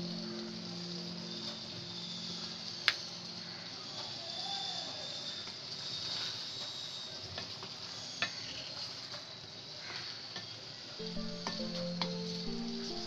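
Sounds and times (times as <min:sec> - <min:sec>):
soft background music: 0:00.0 - 0:05.1, 0:11.0 - 0:13.0.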